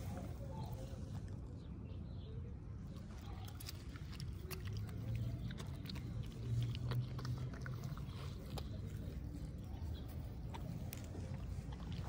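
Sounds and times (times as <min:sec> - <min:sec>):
dog chewing plant stems: 0:03.0 - 0:12.0.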